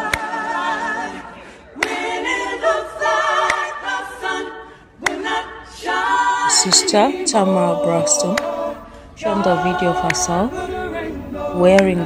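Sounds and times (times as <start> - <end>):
choir singing a cappella: 0.0 - 12.0.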